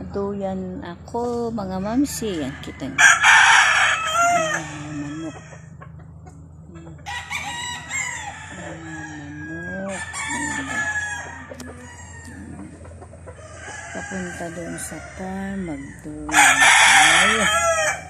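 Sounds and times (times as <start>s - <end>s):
rooster crowing: 2.0s - 5.7s, 7.0s - 12.7s, 13.3s - 18.0s.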